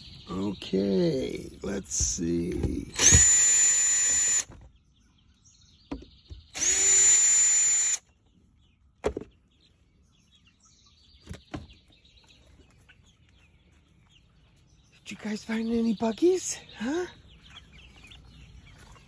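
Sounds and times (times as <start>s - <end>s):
sharp clicks: 2.5s - 3.6s
small electric motor spinning: 3.0s - 4.5s, 6.6s - 8.0s.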